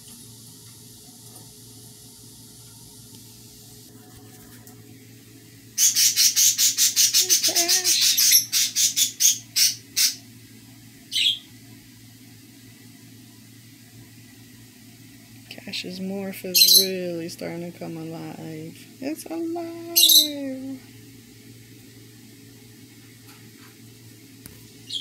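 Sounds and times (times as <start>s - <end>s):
bird chirping: 11.1s - 11.5s.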